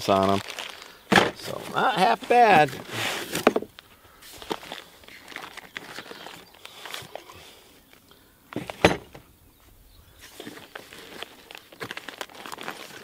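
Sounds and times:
paper and plastic crinkling: 0.0 - 7.3, 10.2 - 13.0
thump: 1.1 - 1.4, 8.6 - 9.2.

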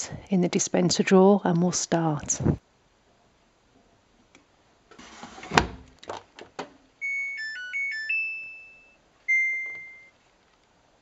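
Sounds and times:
washing machine power-on jingle: 7.0 - 10.1.

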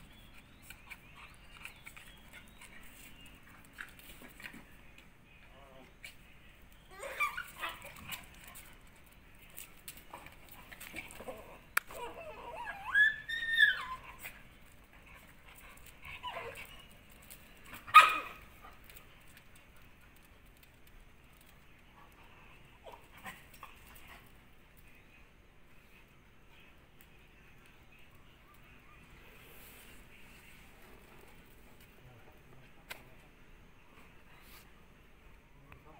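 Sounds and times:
dogs yelping and whining: 6.8 - 8.6, 11.0 - 18.5
dog whining cry: 11.9 - 14.2
sharp dog yelp: 17.9 - 18.4.

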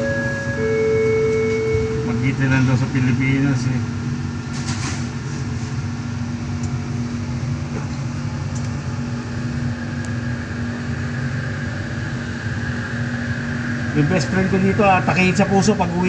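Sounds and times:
train high whine: 0.0 - 16.0
train hum and rumble: 0.0 - 16.0.

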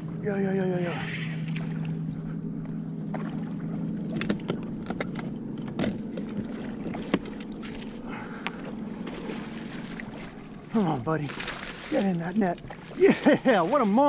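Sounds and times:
steady low hum: 0.0 - 14.0
fish splashing at the surface: 6.3 - 14.0
rod and net clicks and knocks: 11.2 - 12.2.

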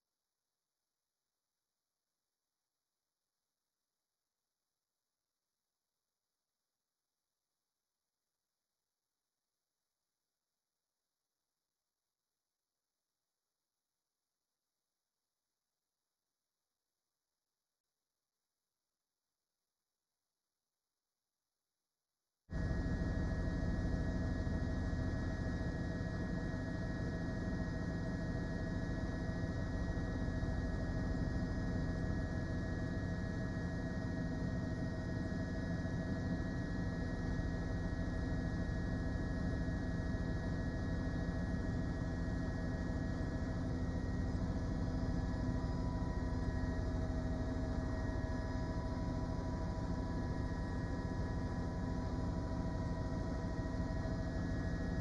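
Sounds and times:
helicopter drone: 22.6 - 55.0.

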